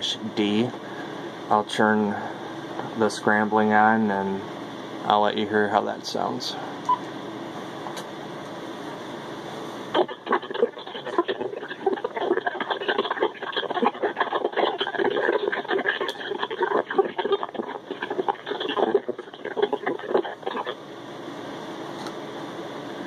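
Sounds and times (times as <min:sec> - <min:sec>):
garbled scrambled digital voice: 0:09.9 - 0:20.8.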